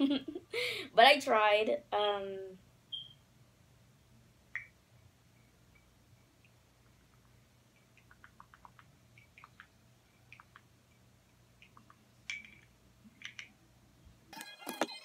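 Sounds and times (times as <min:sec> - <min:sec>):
low room hum: 0:00.0 - 0:15.0
small objects clicking and tapping: 0:11.6 - 0:13.6.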